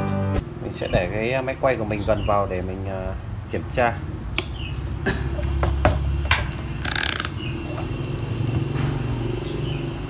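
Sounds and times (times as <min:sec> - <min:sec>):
rotary dial clicks: 0:06.8 - 0:07.4.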